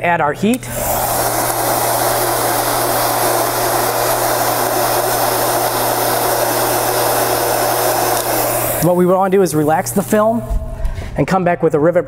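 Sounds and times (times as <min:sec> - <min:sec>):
heat gun blowing hot air: 0:00.6 - 0:10.8.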